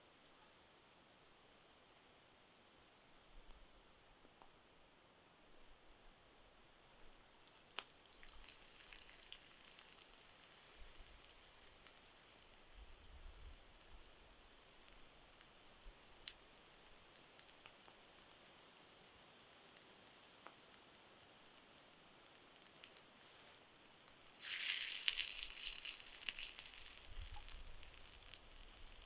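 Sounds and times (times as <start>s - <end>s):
food sizzling in frying pan: 7.2s - 16.4s, 24.2s - 29.0s
sharp clicks and crackles: 7.3s - 12.7s, 13.5s - 18.4s, 21.5s - 23.1s, 23.9s - 29.0s.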